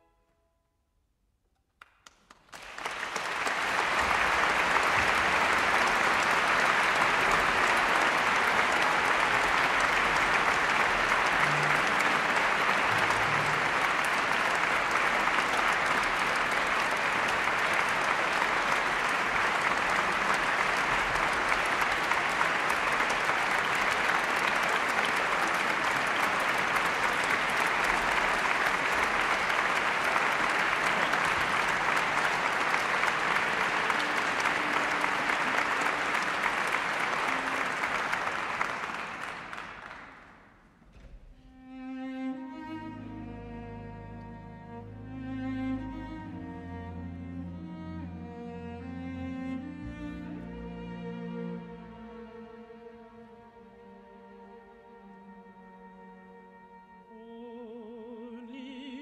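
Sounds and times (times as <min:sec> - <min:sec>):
audience applauding: 0:01.8 - 0:40.8.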